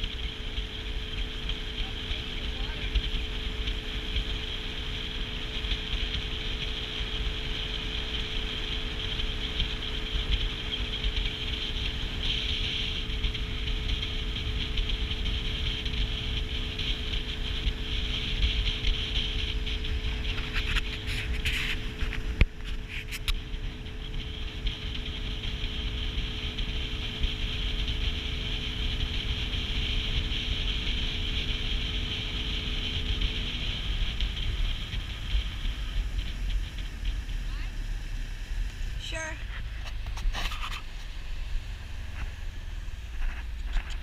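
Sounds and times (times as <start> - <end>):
outboard motor idling: 0.0 - 44.0.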